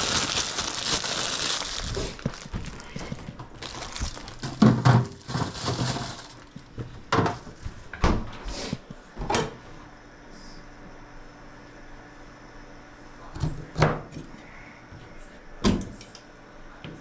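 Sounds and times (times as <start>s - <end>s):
rustling: 0.0s - 6.7s
kitchen items knocking and clattering: 1.2s - 7.6s.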